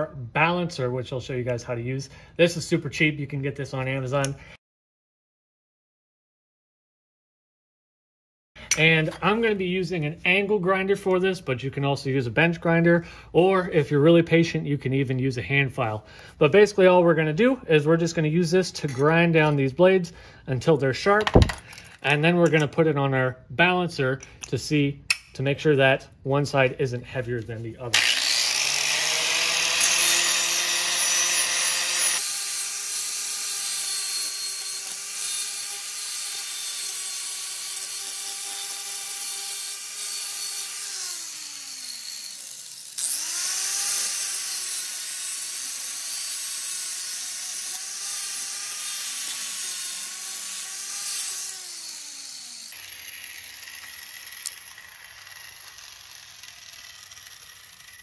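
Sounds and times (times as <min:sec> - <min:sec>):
angle grinder grinding steel: 0:27.4 - 0:58.0.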